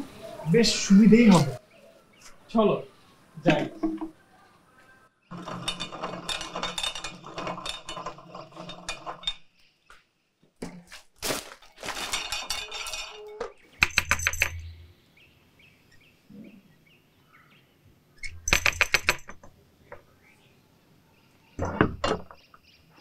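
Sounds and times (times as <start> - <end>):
door knocker rattling on wood: 5.3 - 9.4, 12.1 - 14.7, 18.3 - 19.5
rope running over pulley: 5.3 - 9.4, 11.2 - 14.5.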